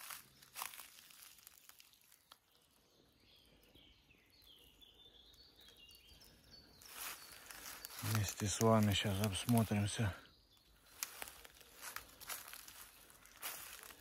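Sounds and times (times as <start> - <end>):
distant bird chirps: 0.0 - 14.0
faint rustles: 10.8 - 14.0.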